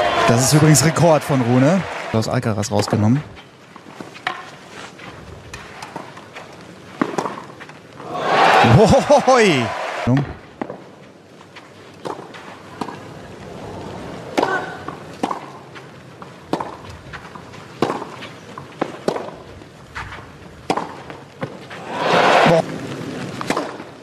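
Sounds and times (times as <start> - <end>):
tennis racket striking ball: 7.0 - 7.5, 14.4 - 15.6, 16.5 - 16.9, 17.8 - 18.2, 18.8 - 19.4, 20.7 - 21.5.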